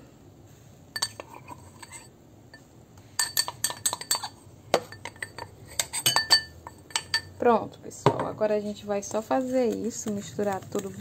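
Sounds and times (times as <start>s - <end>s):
metal spoon clinking on glass bowl: 1.0s - 2.6s, 3.2s - 7.4s.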